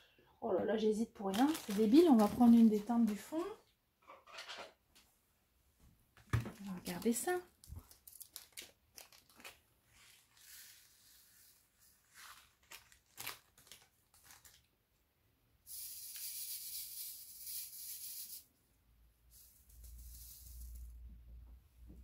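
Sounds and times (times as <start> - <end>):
beads rattling in plastic tray: 1.3 - 3.4, 19.3 - 21.0
plastic zip bag clicks and crinkles: 1.3 - 3.5, 6.6 - 9.6, 12.4 - 14.7.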